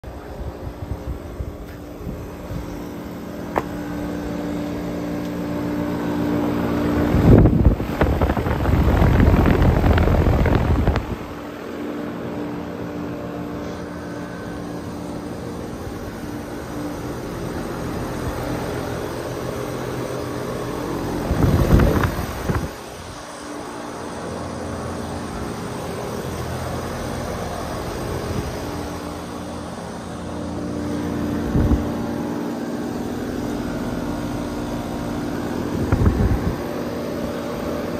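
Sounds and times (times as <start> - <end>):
air conditioner humming: 0.0 - 37.9
wind buffeting microphone: 0.1 - 4.4, 6.7 - 11.5, 21.0 - 23.3, 30.9 - 32.2, 34.5 - 37.6.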